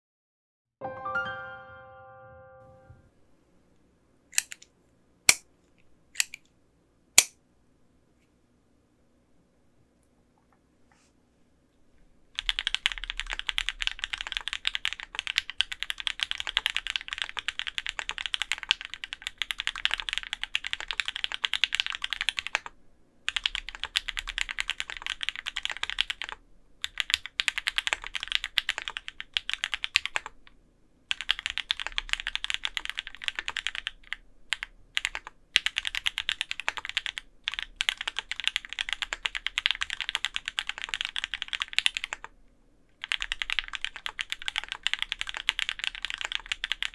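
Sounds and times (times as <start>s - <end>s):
mechanical keyboard typing clacks: 12.4s - 22.7s, 23.3s - 30.4s, 31.1s - 42.3s, 43.0s - 46.9s.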